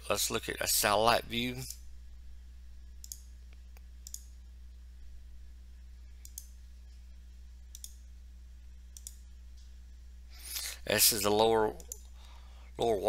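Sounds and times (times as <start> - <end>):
faint low hum: 0.0 - 13.0
computer mouse clicks: 3.0 - 4.3, 6.2 - 6.6, 7.7 - 8.0, 8.9 - 9.2, 11.8 - 12.2.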